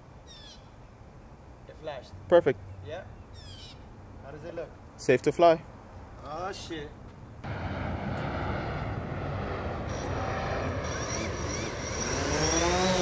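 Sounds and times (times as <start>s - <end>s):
drone propellers whirring: 7.4s - 13.0s
thin high whine: 7.4s - 13.0s.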